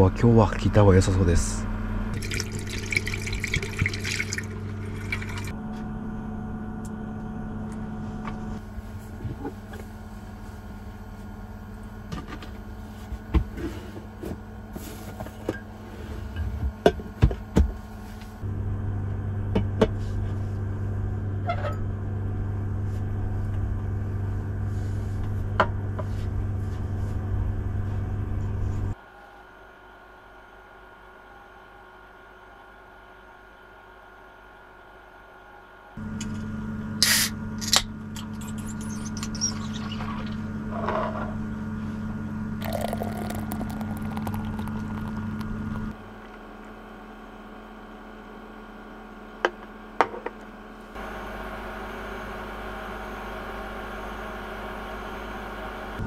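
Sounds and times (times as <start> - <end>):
low electric hum: 0.0 - 56.0
water pouring into steel sink: 2.2 - 5.5, 42.6 - 45.9.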